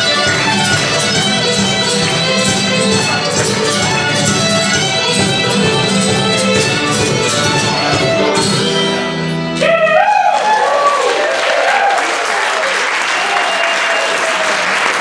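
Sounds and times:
fiddle mandolin and guitar playing: 0.0s - 9.9s
audience applause and cheering: 9.6s - 15.0s.

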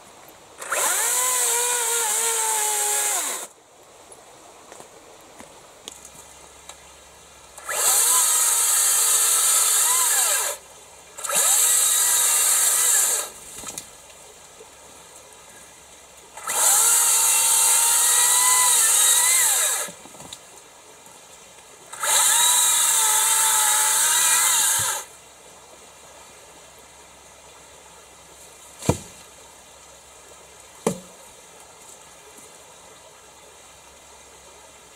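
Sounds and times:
chainsaw cutting log: 0.6s - 3.5s, 7.6s - 10.6s, 11.2s - 13.4s, 16.4s - 20.0s, 21.9s - 25.1s, 28.8s - 29.2s, 30.8s - 31.1s.

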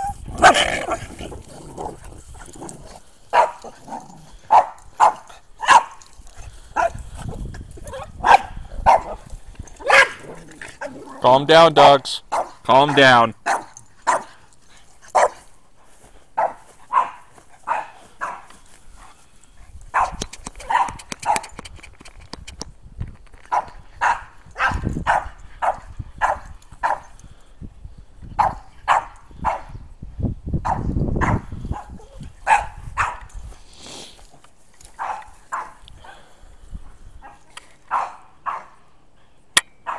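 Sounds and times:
dogs barking: 0.0s - 1.2s, 1.9s - 6.1s, 6.7s - 7.0s, 7.8s - 11.1s, 12.3s - 14.4s, 15.1s - 15.4s, 16.4s - 18.5s, 19.9s - 21.6s, 23.5s - 27.1s, 28.4s - 29.7s, 30.6s - 33.3s, 35.0s - 36.3s, 37.2s - 38.8s.

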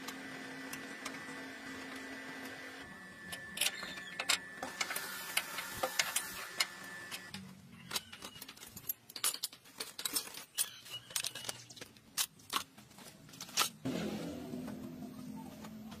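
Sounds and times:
metal tools clattering into basket: 7.9s - 11.6s.

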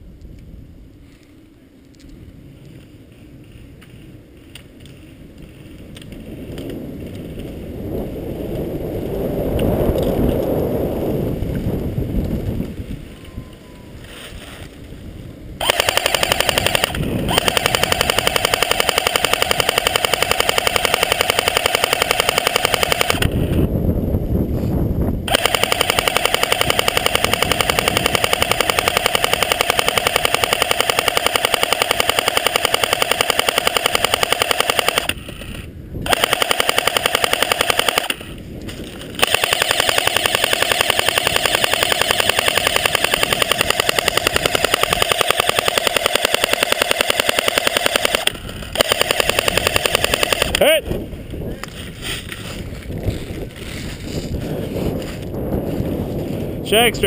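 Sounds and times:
airsoft gun firing full auto: 15.6s - 23.6s, 25.3s - 38.4s, 39.2s - 50.7s.

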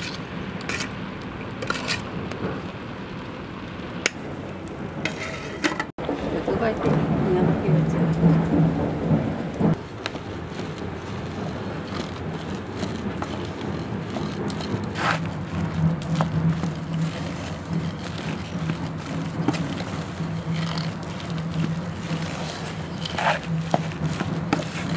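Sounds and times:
wet squelching and scraping: 0.0s - 2.2s, 9.7s - 24.9s
spatula knocking pot: 10.0s - 24.9s.

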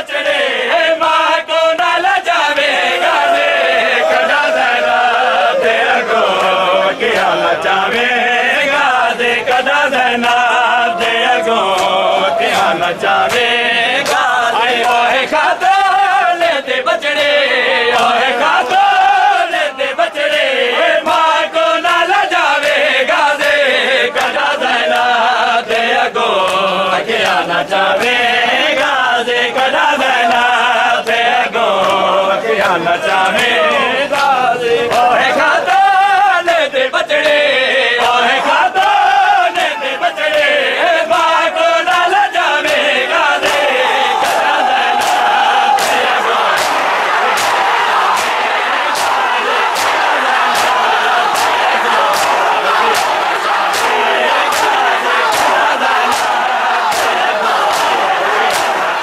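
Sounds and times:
men chanting in unison: 0.0s - 59.0s
sharp slaps of chest beating: 43.4s - 58.8s.

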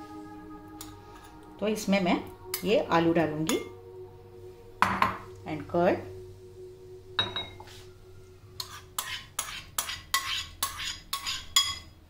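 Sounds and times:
metal spoon clinking on bowls: 8.6s - 12.0s.

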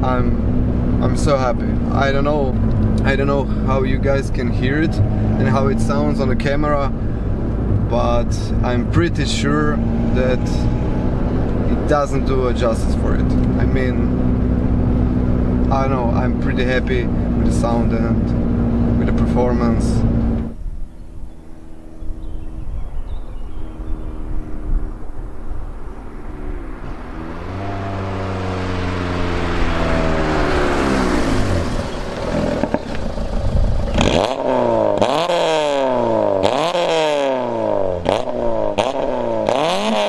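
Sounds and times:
car engine revving: 0.0s - 40.0s
exhaust pops: 29.0s - 35.8s.

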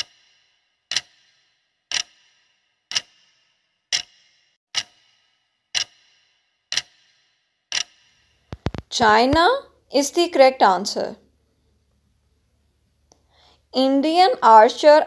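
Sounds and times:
clock ticking with brief ring: 0.9s - 8.2s.

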